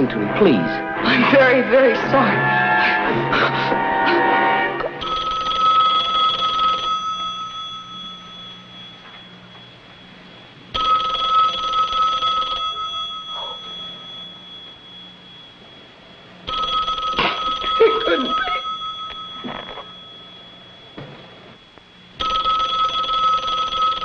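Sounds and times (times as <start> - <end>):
telephone bell ringing: 4.7 - 21.1, 22.2 - 24.0.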